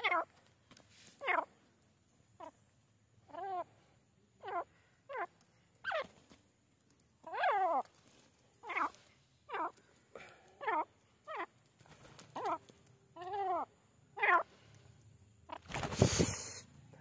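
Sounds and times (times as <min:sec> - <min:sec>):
bird calling: 0:01.2 - 0:01.6, 0:02.3 - 0:06.3, 0:07.2 - 0:14.6.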